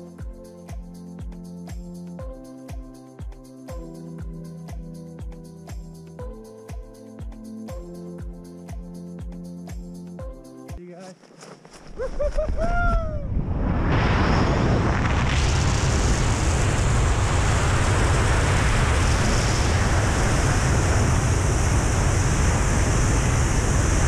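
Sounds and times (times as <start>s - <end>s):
freefall wind buffeting microphone: 11.9s - 24.0s.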